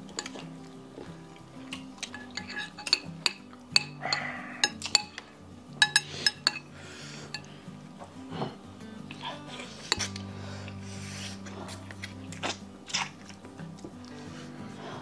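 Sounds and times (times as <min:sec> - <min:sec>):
soft background music: 0:00.0 - 0:15.0
metal spoon scraping ceramic bowl: 0:02.0 - 0:07.5, 0:09.6 - 0:10.3.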